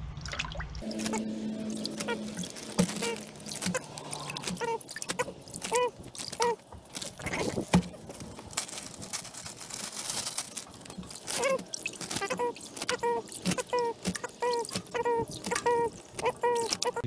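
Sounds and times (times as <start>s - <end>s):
plastic bag crinkling: 0.8s - 17.0s
short squeaks: 0.9s - 7.7s, 10.7s - 17.0s.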